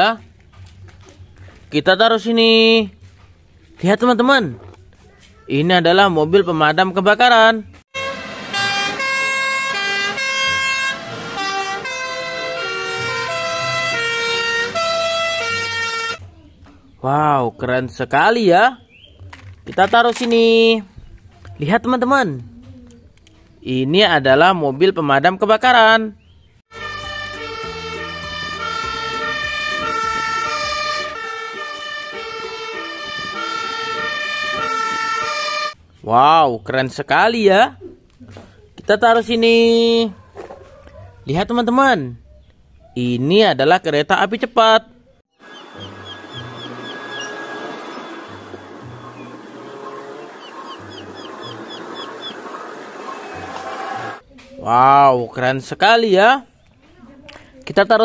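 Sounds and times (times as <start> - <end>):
two-tone fire engine sirens: 8.0 - 16.2, 26.7 - 35.8, 45.4 - 54.2.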